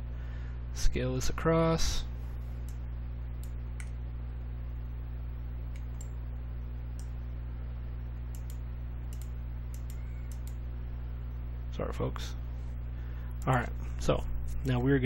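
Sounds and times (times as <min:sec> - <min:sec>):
low electrical hum: 0:00.0 - 0:15.0
computer mouse clicks: 0:05.7 - 0:06.2, 0:08.3 - 0:10.6.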